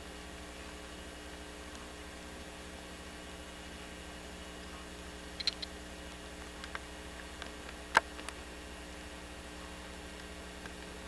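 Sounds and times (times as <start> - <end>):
steady low hum: 0.0 - 11.0
sharp clicks: 5.4 - 8.4.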